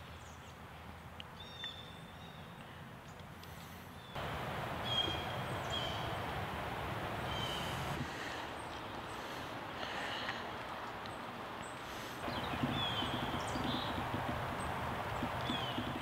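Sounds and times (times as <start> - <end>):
steady low hiss: 0.0 - 16.0
high bird chirps: 4.1 - 6.2, 12.2 - 16.0.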